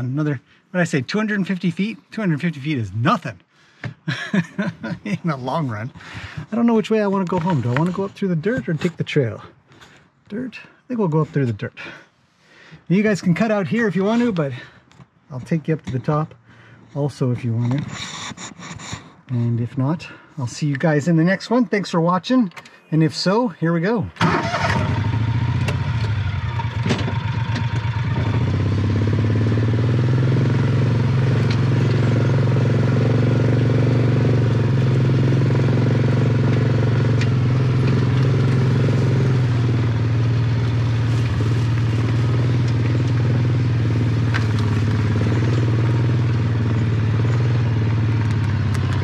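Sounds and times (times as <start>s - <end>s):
utility vehicle engine under load: 3.8s - 9.9s, 24.2s - 49.0s
vehicle clicks and rattles: 24.2s - 28.4s, 31.2s - 32.4s, 36.1s - 49.0s.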